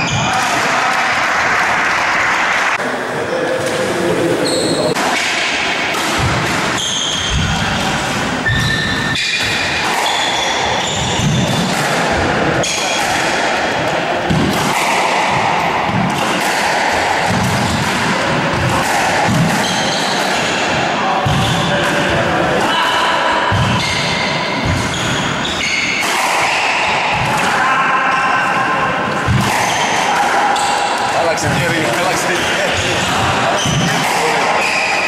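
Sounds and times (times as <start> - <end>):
shoes squeaking on wooden court: 4.4 - 5.0, 6.2 - 11.8, 19.5 - 20.6, 23.6 - 26.9, 30.6 - 35.0.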